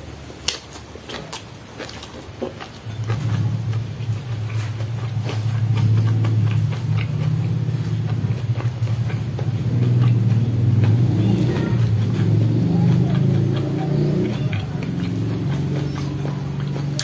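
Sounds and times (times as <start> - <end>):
chewing clicks and lip smacks: 0.3 - 17.0
low engine hum: 2.4 - 17.0.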